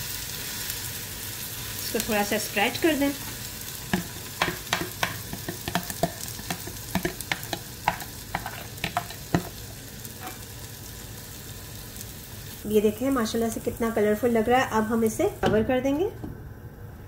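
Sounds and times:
batter sizzling in a frying pan: 0:00.0 - 0:15.5
utensil scraping and tapping: 0:03.9 - 0:09.6.

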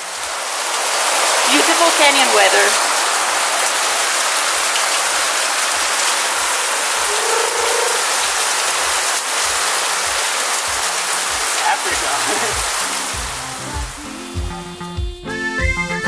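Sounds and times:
rainwater running over ground: 0:00.0 - 0:14.7
heavy rain pouring: 0:00.0 - 0:15.0.

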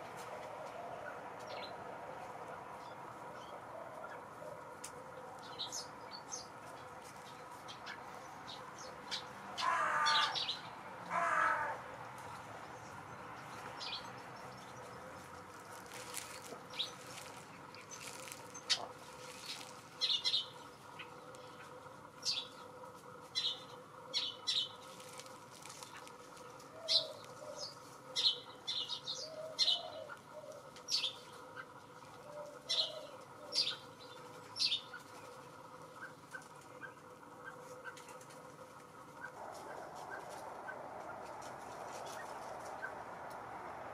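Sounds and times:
crow cawing: 0:09.2 - 0:12.0.

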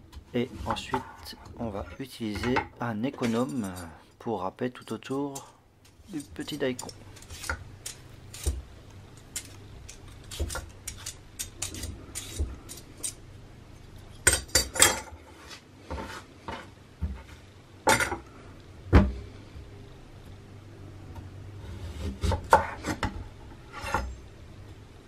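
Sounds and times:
utensils clattering: 0:03.2 - 0:03.9
peeler scraping radish skin: 0:06.0 - 0:13.2.

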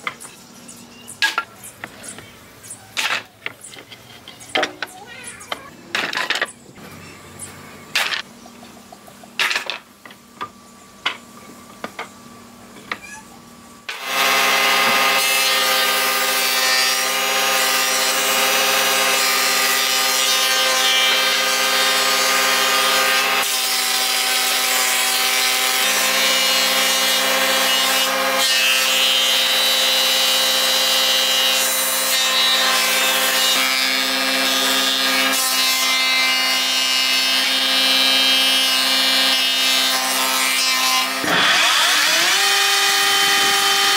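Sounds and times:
power tool working wood: 0:13.9 - 0:43.9.

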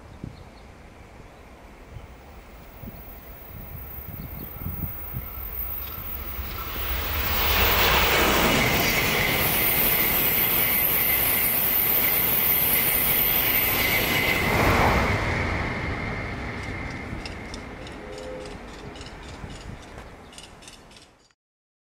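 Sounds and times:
high-speed train rushing past: 0:00.7 - 0:20.5
steady high-pitched tone: 0:02.2 - 0:19.2.

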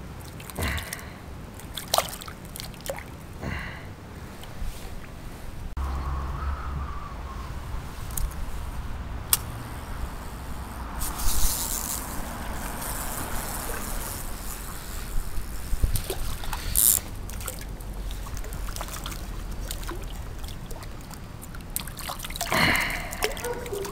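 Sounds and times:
shallow river water: 0:00.0 - 0:23.9
wind on microphone: 0:04.5 - 0:19.6
bursts of hissing noise: 0:07.9 - 0:17.2.

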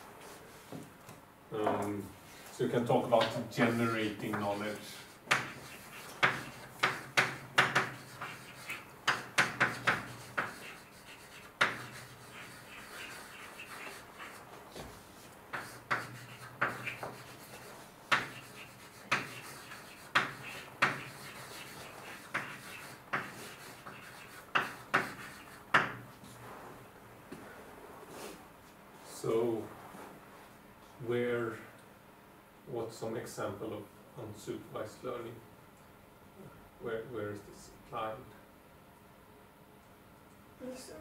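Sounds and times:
writing taps and scratches on board: 0:05.2 - 0:14.9, 0:15.5 - 0:26.1.

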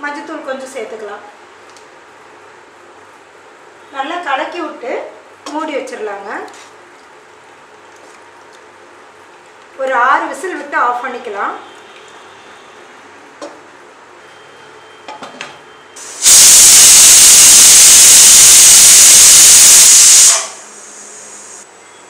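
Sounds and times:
pressure cooker whistling: 0:15.7 - 0:22.0.

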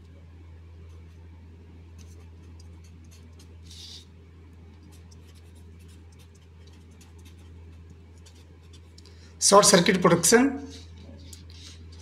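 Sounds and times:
steady low hum: 0:00.0 - 0:12.0
marker writing on paper: 0:02.0 - 0:04.1, 0:04.7 - 0:09.0, 0:10.6 - 0:12.0.

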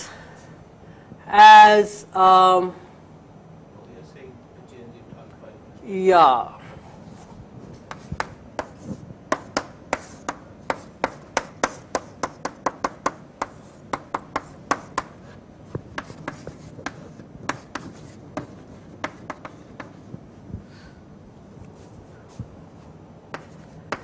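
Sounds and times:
chalk tapping on blackboard: 0:07.8 - 0:20.1, 0:23.3 - 0:24.0
chalk scratching: 0:07.9 - 0:15.4, 0:16.0 - 0:20.0, 0:23.3 - 0:24.0.

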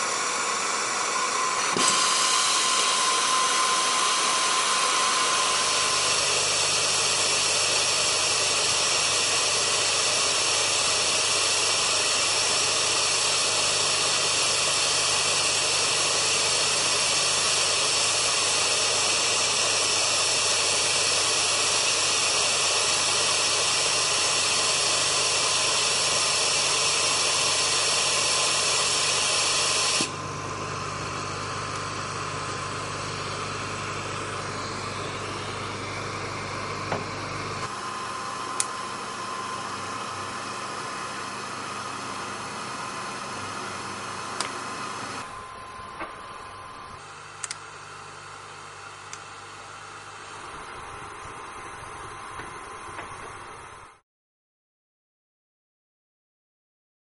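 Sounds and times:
hot gas nozzle hissing: 0:00.0 - 0:11.5, 0:21.7 - 0:33.2.

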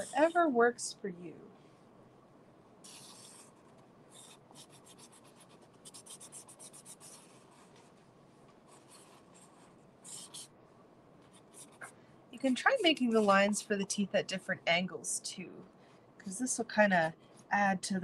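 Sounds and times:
marker scratching on cardboard: 0:02.8 - 0:03.6, 0:04.2 - 0:07.8, 0:08.7 - 0:10.5, 0:11.4 - 0:13.5.

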